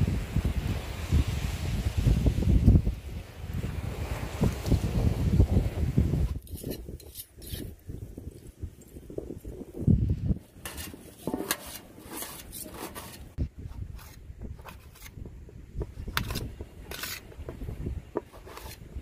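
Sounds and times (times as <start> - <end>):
wind rumble on microphone: 0.0 - 19.0
knife tapping metal plate: 10.7 - 13.1
knife cutting vegetables: 10.7 - 15.1, 16.0 - 17.4, 18.2 - 18.8.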